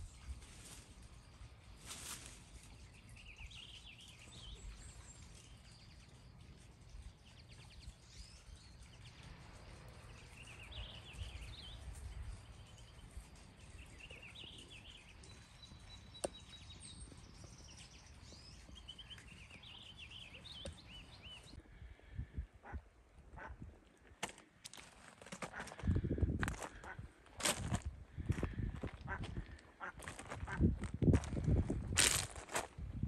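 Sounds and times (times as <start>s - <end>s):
songbird twittering: 7.0s - 21.6s.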